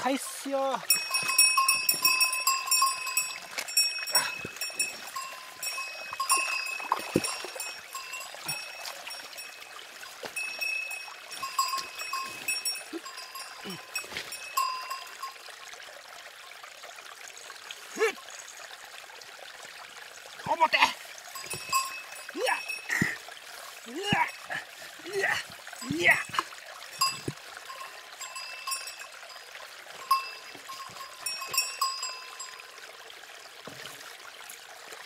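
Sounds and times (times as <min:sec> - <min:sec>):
creek trickling: 0:00.0 - 0:35.0
small bell jingling: 0:00.8 - 0:09.7, 0:10.4 - 0:15.3, 0:21.4 - 0:23.0, 0:27.0 - 0:29.4, 0:30.0 - 0:32.6.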